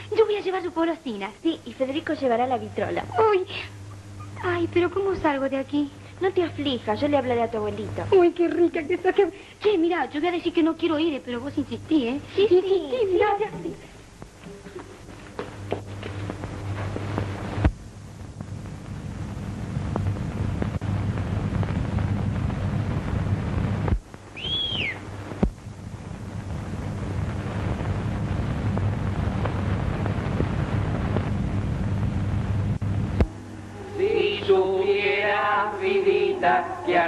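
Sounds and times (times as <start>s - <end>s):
film soundtrack hiss and hum: 0.0s - 37.0s
high whistle rising and falling: 24.4s - 25.0s.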